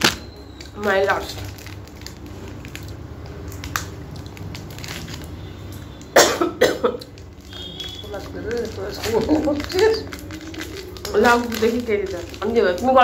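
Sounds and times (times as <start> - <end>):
person coughing: 6.2 - 7.1.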